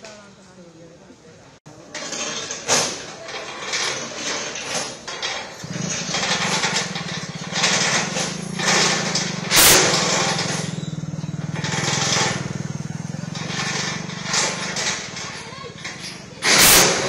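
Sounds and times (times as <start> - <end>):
lorry engine idling: 1.5 - 17.0
short loud burst of noise: 3.7 - 10.8.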